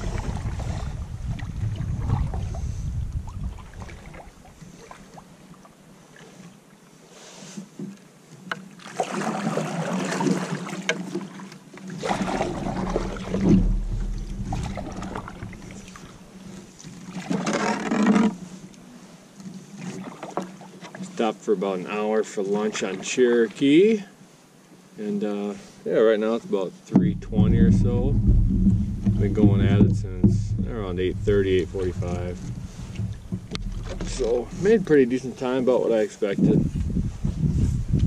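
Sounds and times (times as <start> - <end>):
low rumble: 0.0 - 3.9, 12.0 - 16.6, 27.0 - 35.3
paddle splashing water: 0.0 - 23.6, 26.9 - 36.0
knocks against canoe: 12.0 - 16.3, 26.9 - 34.9.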